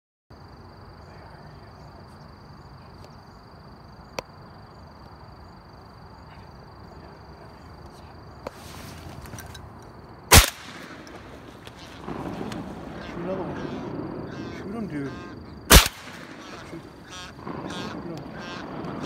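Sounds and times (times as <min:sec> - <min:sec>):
shotgun blast: 0:10.3 - 0:11.4, 0:15.7 - 0:19.0.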